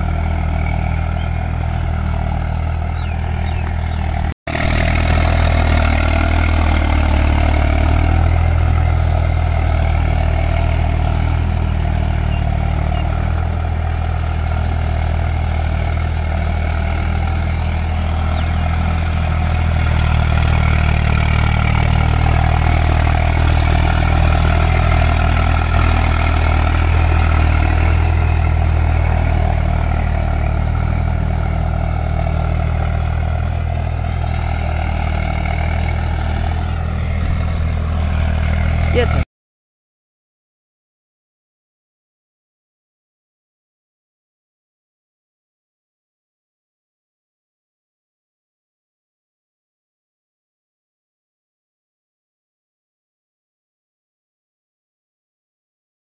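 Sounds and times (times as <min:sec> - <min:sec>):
tractor diesel engine under load: 0:00.0 - 0:39.3.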